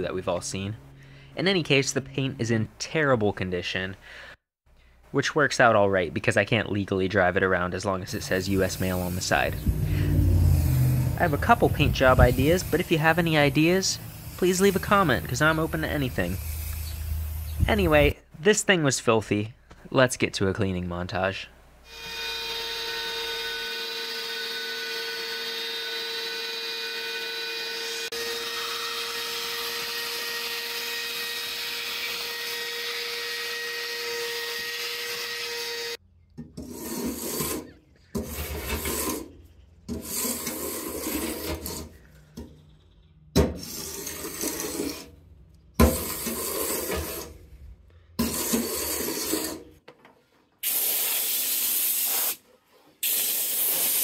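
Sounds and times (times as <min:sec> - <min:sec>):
air blow gun hissing: 0:08.2 - 0:18.1, 0:50.6 - 0:52.4, 0:53.0 - 0:54.0
shop vacuum running: 0:08.4 - 0:17.4
scraper on metal panel: 0:36.6 - 0:42.0, 0:43.6 - 0:45.2, 0:45.8 - 0:47.5, 0:48.2 - 0:49.8.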